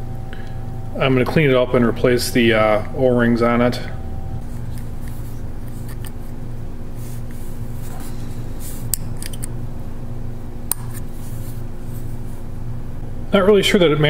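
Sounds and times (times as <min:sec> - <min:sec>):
steady low hum: 0:00.0 - 0:14.0
small metallic clicks and scrapes: 0:08.9 - 0:09.5.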